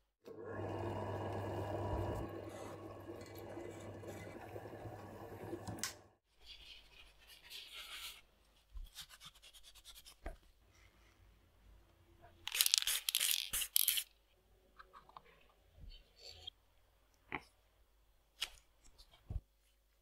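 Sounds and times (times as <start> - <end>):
steady hum: 0.3 - 6.2
brush scrubbing: 2.0 - 4.8.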